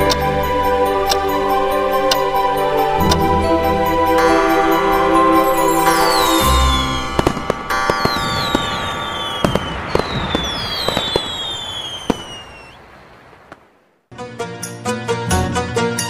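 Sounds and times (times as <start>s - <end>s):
music: 0.0s - 9.3s, 14.1s - 16.0s
firework whistles: 5.8s - 12.9s
crackling hiss: 5.8s - 14.1s
firework bangs: 6.5s - 14.0s.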